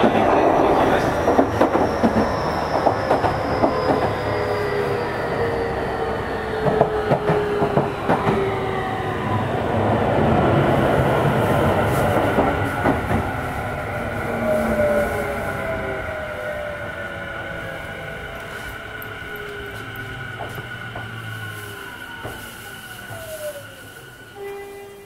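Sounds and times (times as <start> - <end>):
train motor whine: 17.7 - 25.0.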